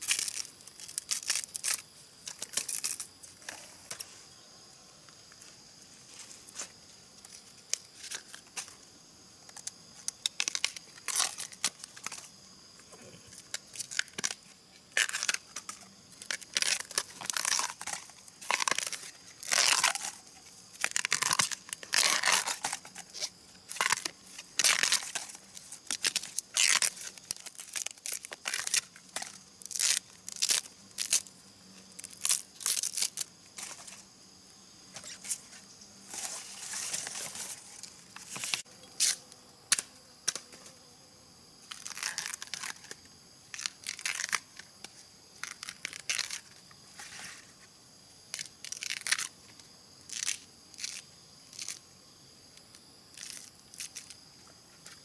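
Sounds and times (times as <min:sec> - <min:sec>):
bamboo sheaths tearing: 0:00.0 - 0:04.1, 0:09.5 - 0:12.3, 0:13.3 - 0:34.0, 0:36.1 - 0:40.5, 0:41.6 - 0:47.5, 0:48.3 - 0:49.4, 0:50.0 - 0:51.8, 0:52.6 - 0:54.2.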